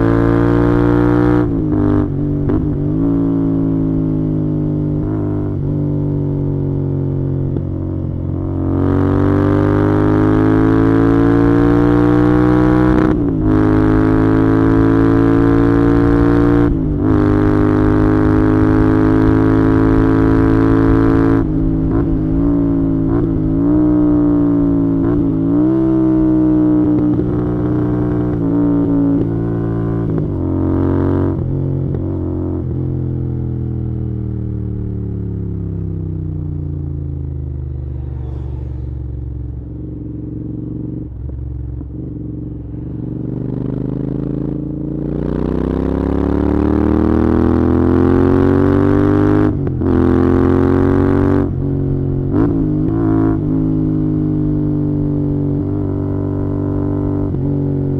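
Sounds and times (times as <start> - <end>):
motorcycle engine: 0.0 - 57.9.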